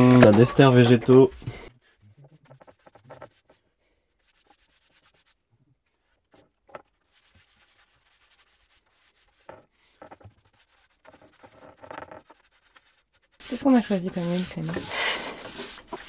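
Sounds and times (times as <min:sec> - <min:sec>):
paintbrush scratchy brushing strokes: 0:02.1 - 0:05.4, 0:06.8 - 0:16.0.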